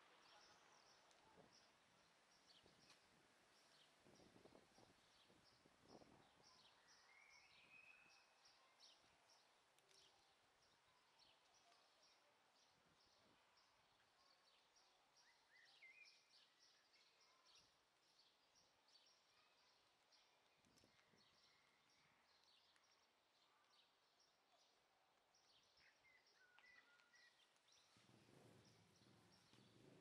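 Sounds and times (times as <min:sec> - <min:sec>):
bird chirps: 0:05.9 - 0:09.1, 0:25.5 - 0:28.0.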